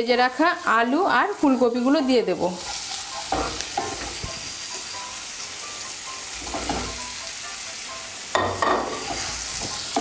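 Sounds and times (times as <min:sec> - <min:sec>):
spice paste sizzling in oil: 0:00.0 - 0:10.0
spatula stirring and scraping pan: 0:00.1 - 0:04.9, 0:05.7 - 0:07.2, 0:08.3 - 0:10.0.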